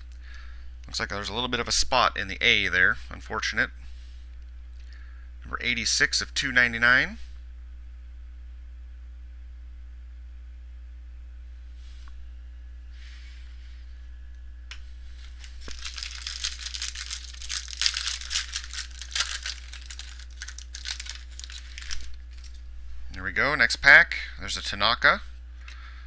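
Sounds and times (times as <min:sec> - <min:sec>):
faint steady hum: 0:00.0 - 0:26.0
card pack wrapper crinkling: 0:15.2 - 0:22.6.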